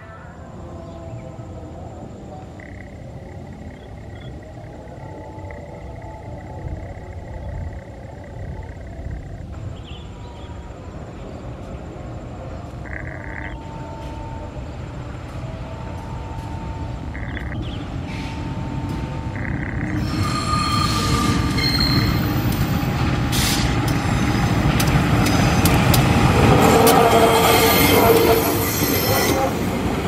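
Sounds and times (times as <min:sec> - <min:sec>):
locomotive engine rumble: 0:01.7 - 0:30.0
train wheel squeal: 0:18.0 - 0:30.0
train wheels clacking: 0:19.8 - 0:30.0.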